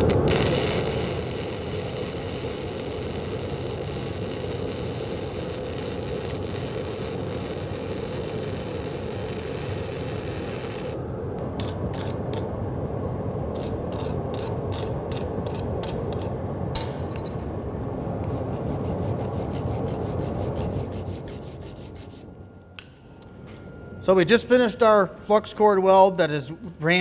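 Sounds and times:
welding arc crackling hiss: 0:00.0 - 0:11.0.

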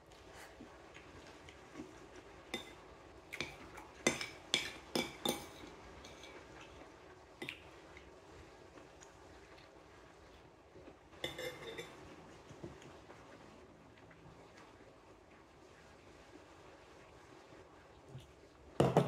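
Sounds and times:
metal spoon scraping ceramic plate: 0:11.2 - 0:12.0.

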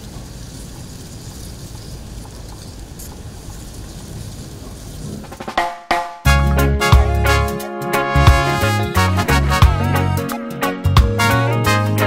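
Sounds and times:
faint hiss: 0:00.0 - 0:05.6.

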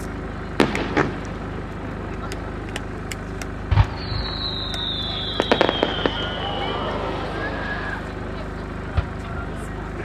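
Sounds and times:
low background rumble: 0:00.0 - 0:10.0
crackling firework pops: 0:00.6 - 0:06.8
firework shell boom: 0:03.7 - 0:06.4
falling firework whistle: 0:03.8 - 0:08.2.

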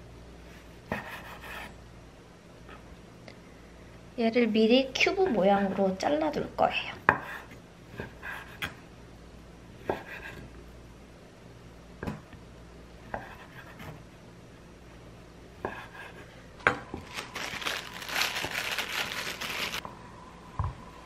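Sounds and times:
crinkling: 0:17.0 - 0:19.8.

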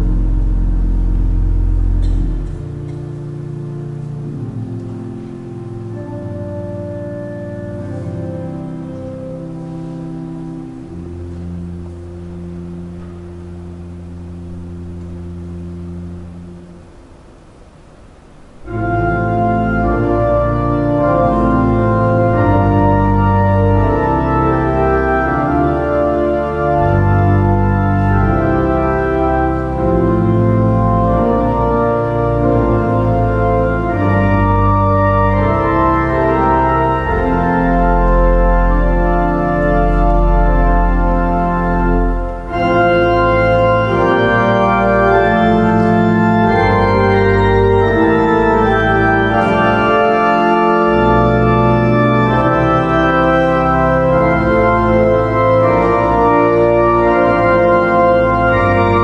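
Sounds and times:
church organ chords: 0:00.0 - 0:59.0.

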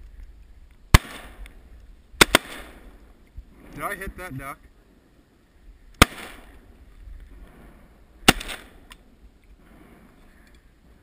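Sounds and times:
shotgun shots echoing: 0:00.9 - 0:01.4, 0:02.2 - 0:02.9, 0:06.0 - 0:06.6, 0:08.2 - 0:08.8.

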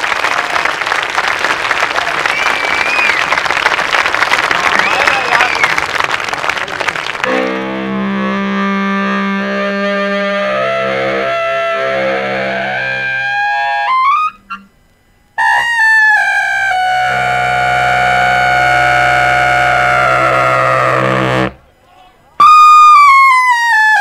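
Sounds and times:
saxophone quartet playing chords: 0:07.2 - 0:14.7, 0:15.4 - 0:21.7.

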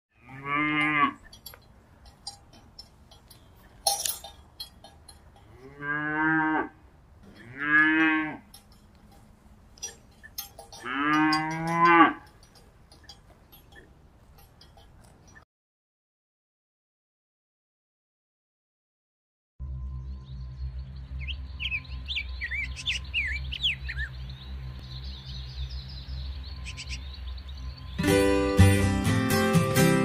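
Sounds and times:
cow mooing: 0:00.2 - 0:01.4, 0:05.4 - 0:08.7, 0:09.8 - 0:12.5.

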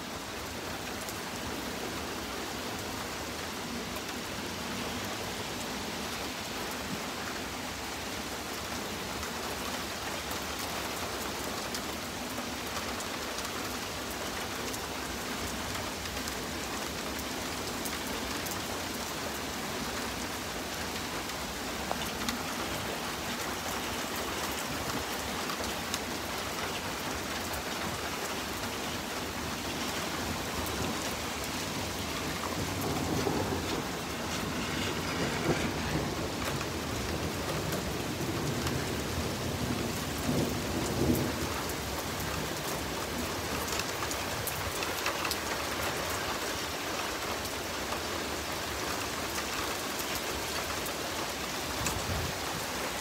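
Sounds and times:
steady rain falling: 0:00.0 - 0:53.0
low thunder rumbles: 0:29.1 - 0:43.3.

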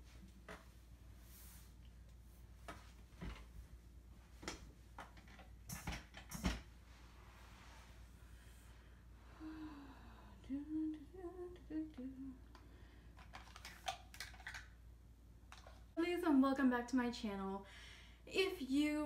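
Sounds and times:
woman humming: 0:09.4 - 0:12.4.

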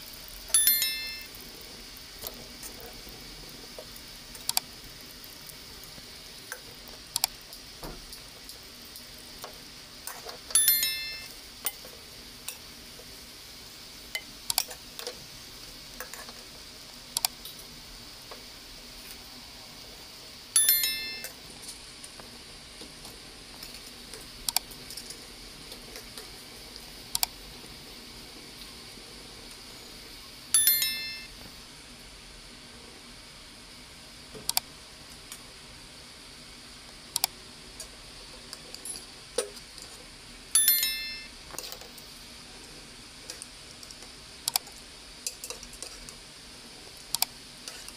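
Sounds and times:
pot sizzling: 0:00.0 - 0:47.9
ladle striking pot ringing: 0:00.5 - 0:01.3, 0:10.5 - 0:11.3, 0:20.6 - 0:21.3, 0:30.6 - 0:31.3, 0:40.6 - 0:41.3.

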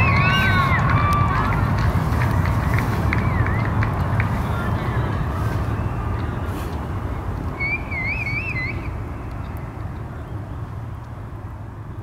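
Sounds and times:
low outdoor rumble: 0:00.0 - 0:12.0
wavering whistle: 0:03.1 - 0:03.8, 0:07.6 - 0:09.3.

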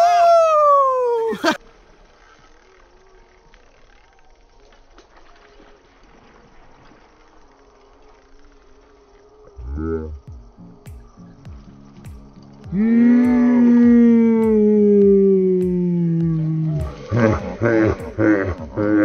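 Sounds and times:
faint outdoor background: 0:00.0 - 0:19.0
music: 0:10.2 - 0:19.0.

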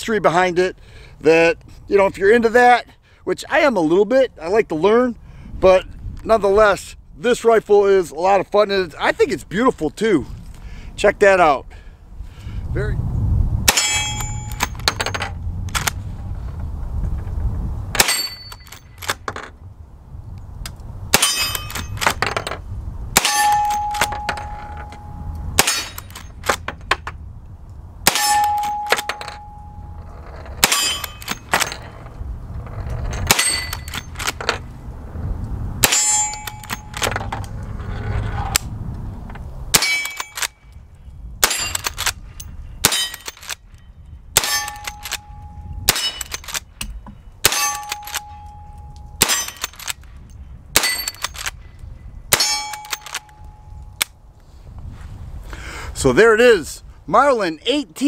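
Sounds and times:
steel target ringing: 0:13.7 - 0:14.8, 0:18.0 - 0:18.8, 0:21.1 - 0:22.0, 0:23.2 - 0:26.2, 0:28.1 - 0:30.0, 0:30.6 - 0:31.8, 0:35.8 - 0:37.1, 0:39.7 - 0:40.4, 0:44.4 - 0:46.3, 0:47.4 - 0:49.6, 0:52.3 - 0:53.8
rifle shots: 0:25.6 - 0:26.6, 0:30.6 - 0:31.8.

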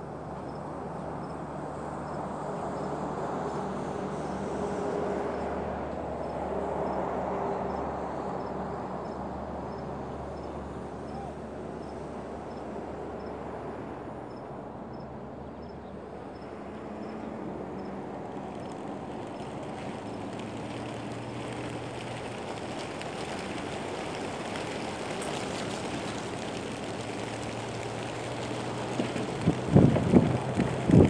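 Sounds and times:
pigeon wings fluttering: 0:17.9 - 0:31.0
wind on microphone: 0:29.3 - 0:31.0.

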